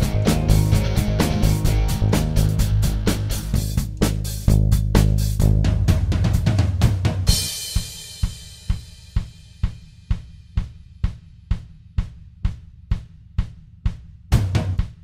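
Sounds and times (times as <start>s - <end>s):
band with bass and guitar: 0.0s - 6.0s
drum beat: 0.0s - 15.0s.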